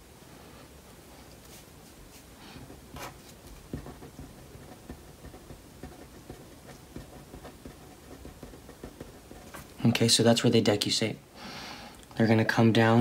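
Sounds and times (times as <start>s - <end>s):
felt-tip marker drawing: 3.0s - 9.7s.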